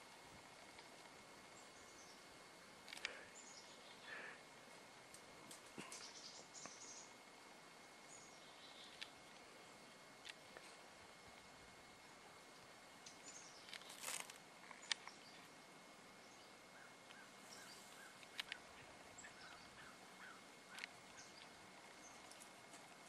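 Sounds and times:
faint ambient hiss: 0:00.0 - 0:23.0
sharp clicks: 0:02.8 - 0:03.2, 0:13.0 - 0:15.2, 0:18.0 - 0:18.7, 0:20.7 - 0:22.5
soft bird chirps: 0:03.0 - 0:04.4, 0:05.8 - 0:07.2, 0:08.0 - 0:09.2, 0:13.0 - 0:15.5, 0:16.1 - 0:22.6.

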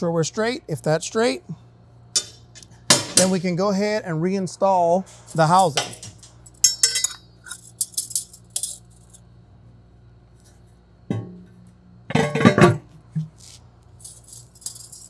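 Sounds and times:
metal clinking and rattling: 0:05.5 - 0:09.3, 0:14.0 - 0:15.0
metal clatter: 0:05.6 - 0:09.2, 0:12.1 - 0:12.9, 0:14.0 - 0:15.0.

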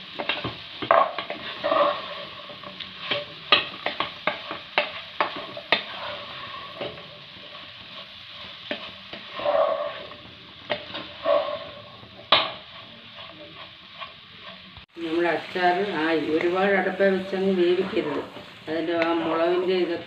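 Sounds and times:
spatula scraping and knocking pan: 0:00.0 - 0:14.9
pickle sizzling in oil: 0:00.0 - 0:20.0.

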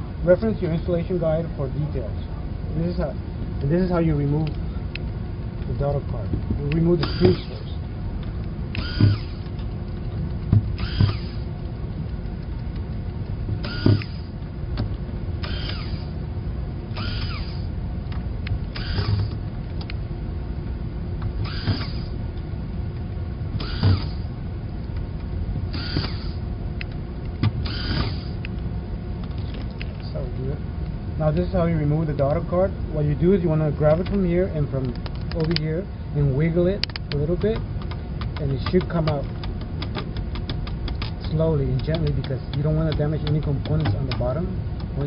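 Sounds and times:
steady low hum: 0:00.0 - 0:45.0
screwdriver squeaking on screws: 0:06.9 - 0:07.8, 0:08.8 - 0:12.8, 0:13.6 - 0:14.4, 0:15.4 - 0:16.2, 0:17.0 - 0:17.7, 0:18.8 - 0:19.4, 0:21.4 - 0:22.2, 0:23.6 - 0:24.3, 0:25.7 - 0:26.4, 0:27.6 - 0:28.4.

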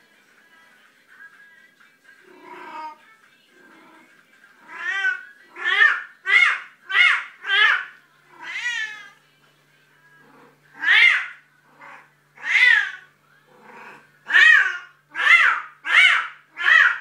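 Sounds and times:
cat meowing loudly: 0:10.8 - 0:11.4.

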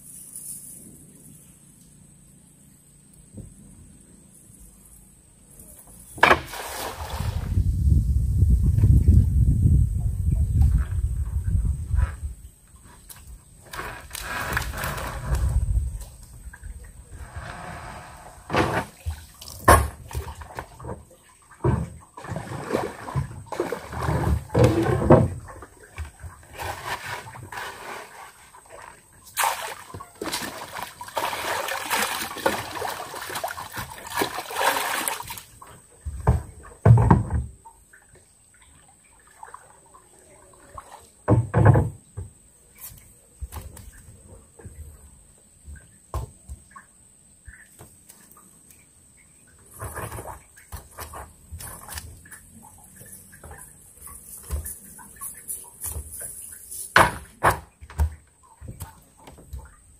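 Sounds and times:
water splashing and streaming: 0:06.2 - 0:08.0, 0:12.4 - 0:44.8, 0:45.5 - 0:59.9
knocks and thumps: 0:36.0 - 0:37.6, 0:41.3 - 0:42.4, 0:53.4 - 0:56.2, 0:56.9 - 0:59.7.

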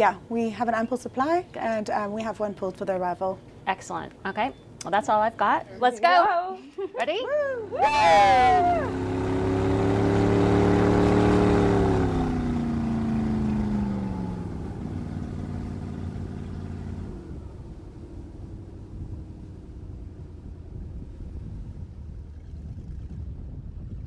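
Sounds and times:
person shouting woo: 0:07.3 - 0:09.0
motorboat engines running: 0:07.5 - 0:23.4.

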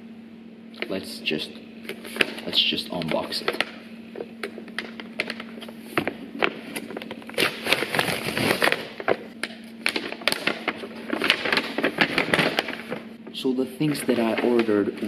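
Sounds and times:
envelope tearing and crinkling: 0:04.7 - 0:13.1.

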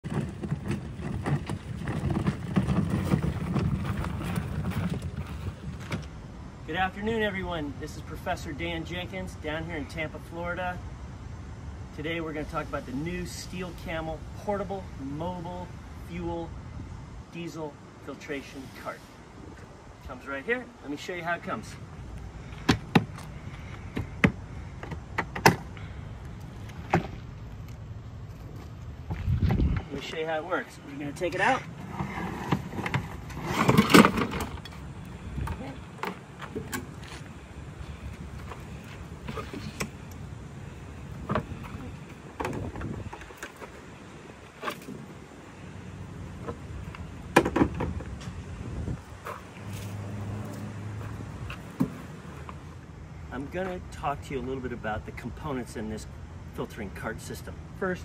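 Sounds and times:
cart wheels rattling over gravel: 0:00.0 - 0:06.1, 0:31.0 - 0:39.8.

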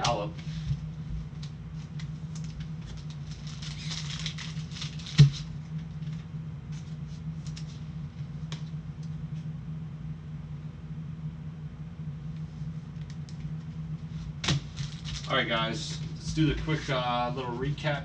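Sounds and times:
trading cards clicking and rustling: 0:01.4 - 0:07.8, 0:14.5 - 0:16.1.

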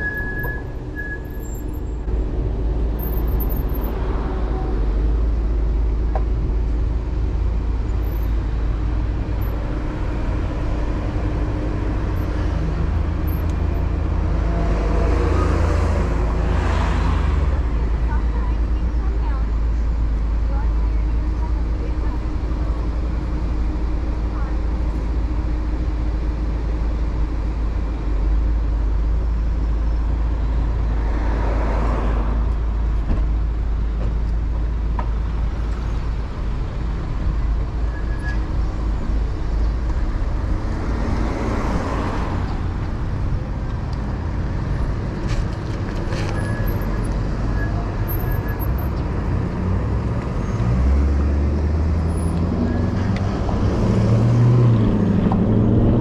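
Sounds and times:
car engines idling: 0:00.0 - 0:14.4, 0:16.0 - 0:31.0
low traffic rumble: 0:00.0 - 0:56.0
vehicles passing: 0:00.0 - 0:56.0
deep engine hum: 0:48.9 - 0:56.0.

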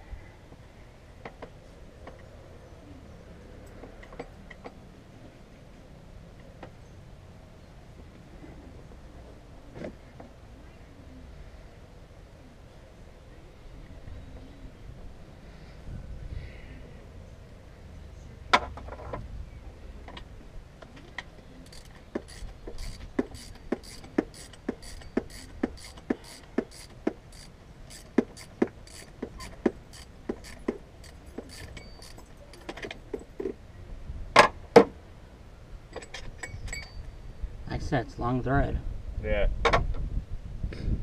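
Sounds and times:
ratchet wrench clicking: 0:21.6 - 0:32.3
wrenches clanking: 0:21.6 - 0:33.2.

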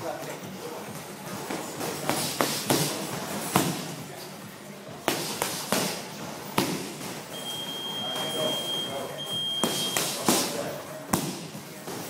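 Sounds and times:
gloved strikes smacking pads: 0:11.1 - 0:11.5.

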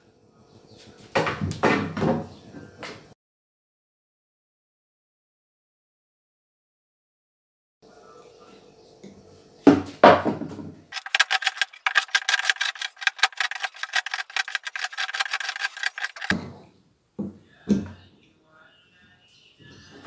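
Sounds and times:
tool chipping plaster: 0:11.0 - 0:16.4.

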